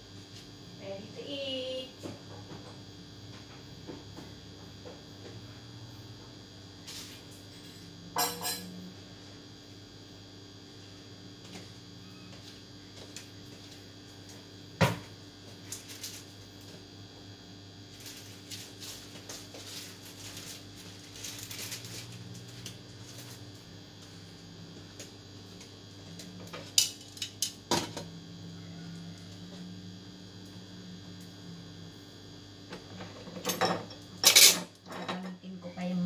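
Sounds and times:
steady low hum: 0:00.0 - 0:36.0
dishes and utensils clinking: 0:33.3 - 0:35.3.

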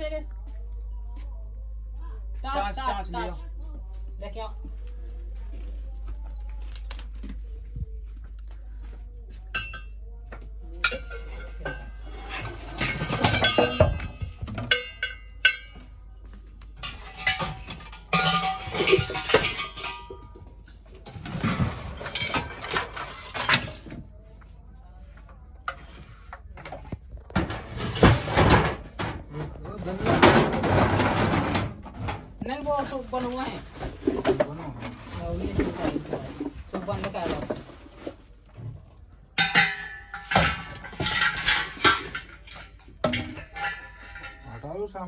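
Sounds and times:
scrap metal and tins clattering: 0:10.8 - 0:15.9, 0:16.7 - 0:24.0, 0:25.7 - 0:38.7, 0:39.4 - 0:44.8.

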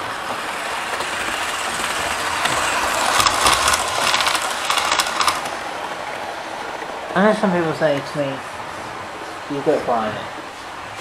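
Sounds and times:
model train motor whirr: 0:00.0 - 0:05.5
wheels clicking on track: 0:00.0 - 0:07.0.

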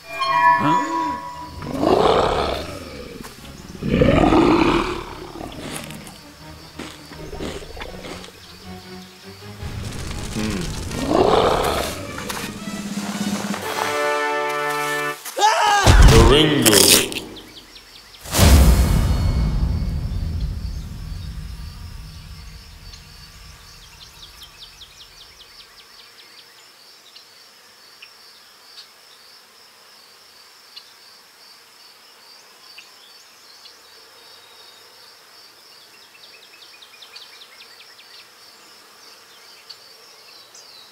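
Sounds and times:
high-pitched insect drone: 0:00.0 - 0:09.6
deep boom: 0:18.3 - 0:24.4.

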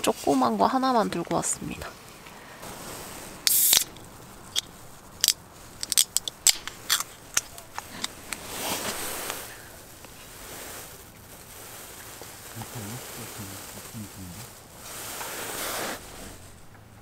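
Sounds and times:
can opening hiss: 0:03.4 - 0:10.2.

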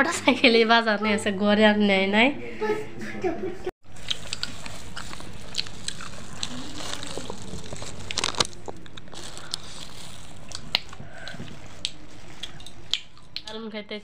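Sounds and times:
plastic bag and foil packet crinkling: 0:03.9 - 0:13.7.

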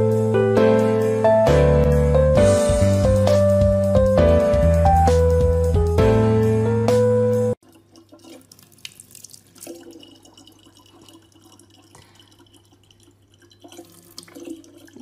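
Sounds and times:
water trickling into plastic bottle: 0:07.6 - 0:15.0.

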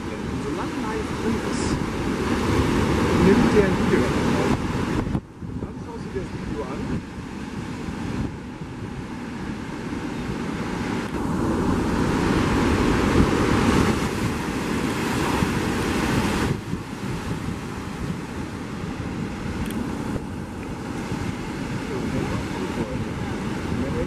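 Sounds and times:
surf breaking against rocks: 0:00.0 - 0:08.0
wind buffeting microphone: 0:00.0 - 0:24.0.

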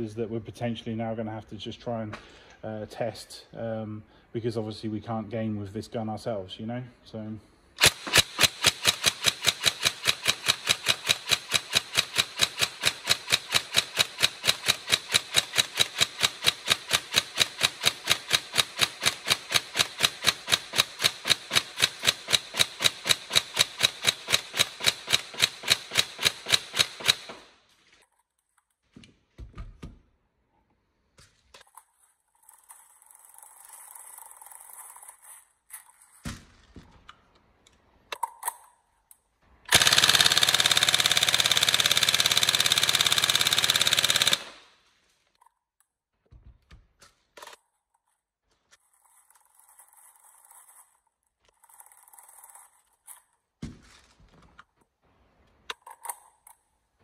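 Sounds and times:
airsoft rifle firing single shots: 0:07.8 - 0:27.6, 0:39.7 - 0:44.7.

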